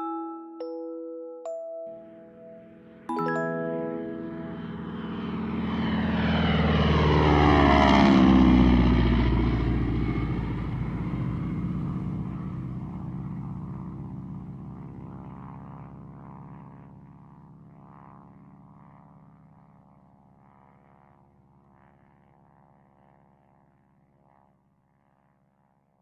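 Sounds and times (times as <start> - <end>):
propeller airplane flying past: 2.0 - 26.0.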